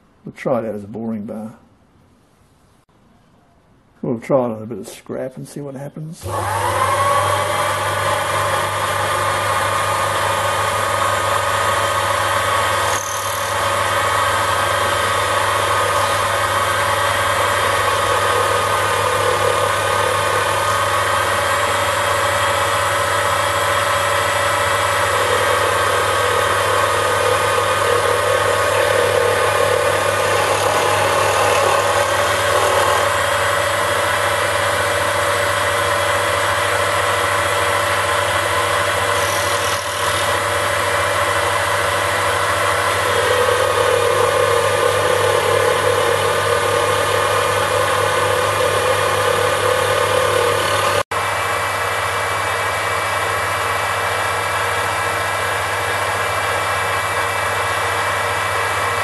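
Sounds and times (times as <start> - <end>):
boring bar cutting steel: 6.2 - 51.1
lathe motor whine: 6.2 - 59.0.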